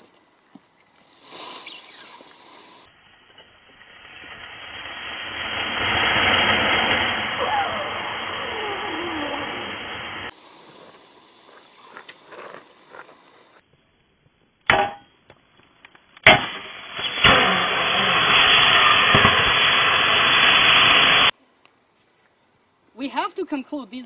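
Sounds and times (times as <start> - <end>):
loud hiss of battery venting: 1.0 - 2.9, 10.3 - 13.6.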